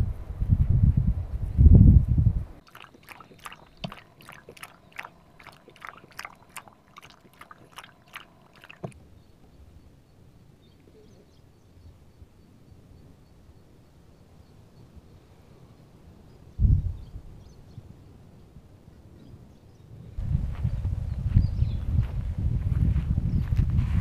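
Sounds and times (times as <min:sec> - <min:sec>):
dog lapping water: 0:02.6 - 0:09.0.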